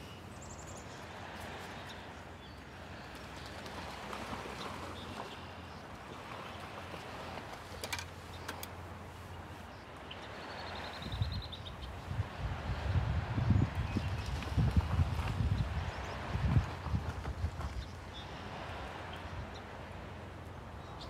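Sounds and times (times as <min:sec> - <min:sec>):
wind buffeting microphone: 0:10.8 - 0:18.7.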